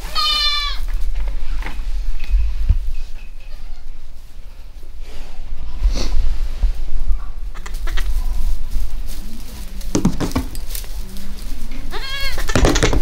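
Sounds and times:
young goat bleating: 0:00.0 - 0:00.9, 0:11.9 - 0:12.6
knocks and rustling on plastic tub: 0:09.9 - 0:10.6, 0:12.5 - 0:13.0.

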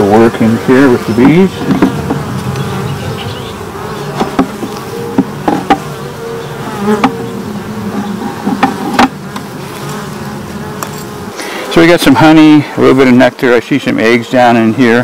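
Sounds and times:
honeybees humming: 0:00.0 - 0:15.0
knocks from wooden hive frames: 0:01.0 - 0:11.2.

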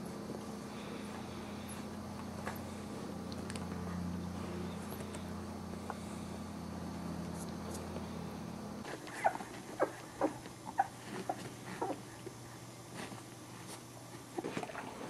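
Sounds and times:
steady low hum: 0:00.0 - 0:15.0
puppy whimpering: 0:09.1 - 0:12.0.

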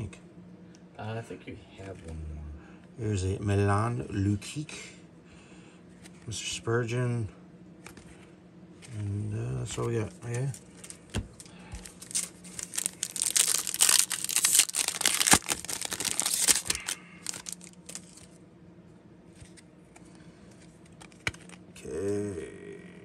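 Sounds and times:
cards clicking and shuffling: 0:09.8 - 0:18.3, 0:19.3 - 0:21.6
foil wrapper crinkling and tearing: 0:10.3 - 0:18.4.

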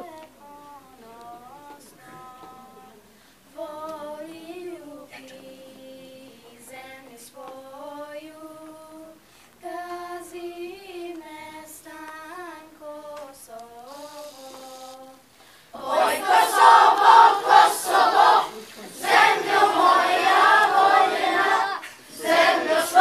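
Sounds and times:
girls singing unaccompanied: 0:00.0 - 0:23.0
full choir singing: 0:15.7 - 0:23.0.

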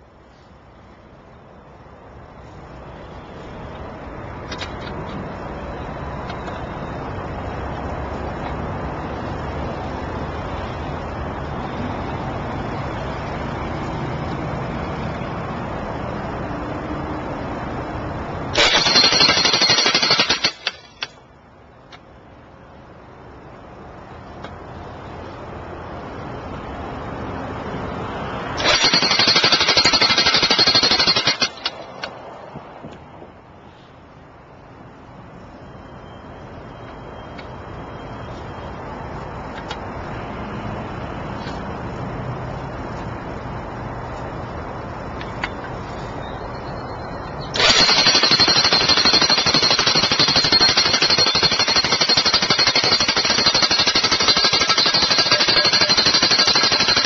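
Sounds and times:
jackhammer hammering post: 0:18.5 - 0:21.2, 0:28.6 - 0:32.2, 0:47.6 - 0:57.0.

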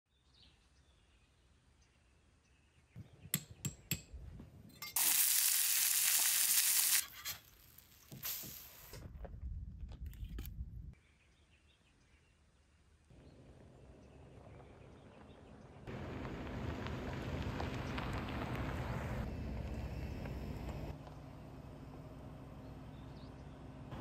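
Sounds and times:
food sizzling in a pan: 0:05.0 - 0:08.7.

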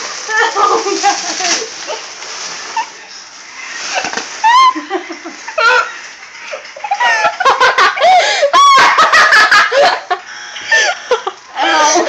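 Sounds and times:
girls giggling and squealing: 0:03.9 - 0:12.0.

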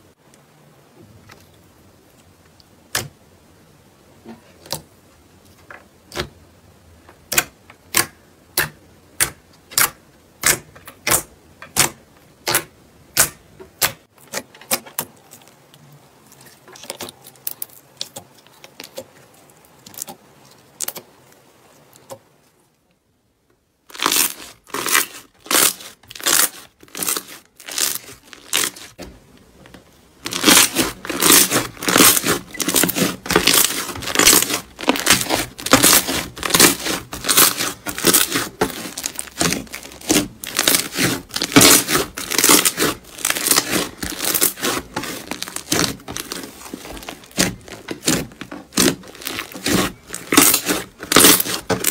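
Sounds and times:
slime crackling and popping: 0:23.9 - 0:29.0, 0:30.2 - 0:51.9.

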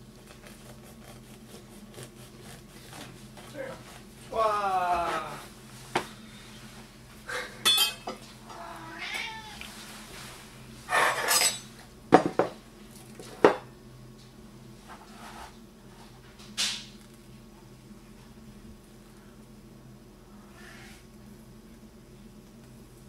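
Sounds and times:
man's excited cries: 0:04.3 - 0:05.4.

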